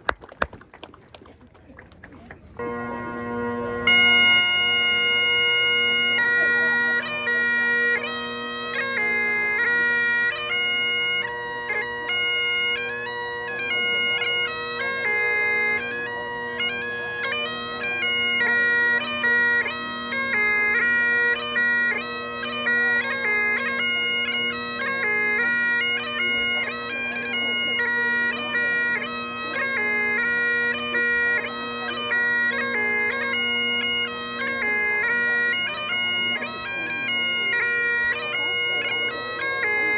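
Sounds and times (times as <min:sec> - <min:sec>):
bagpipes playing: 0:02.5 - 0:39.9.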